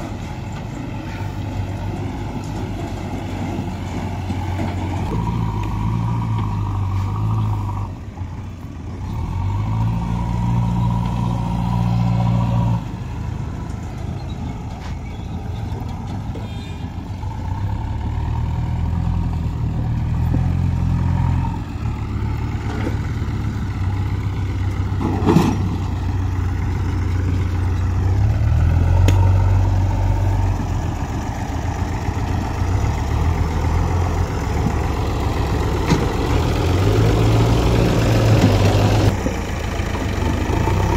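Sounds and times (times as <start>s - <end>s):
diesel engines running: 0.0s - 40.9s.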